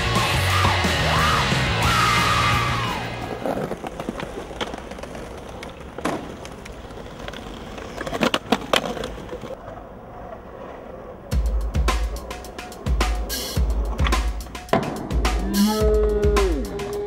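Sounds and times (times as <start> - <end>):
skateboard wheels rolling: 0.0 - 17.0
skateboard clacks: 3.3 - 15.4.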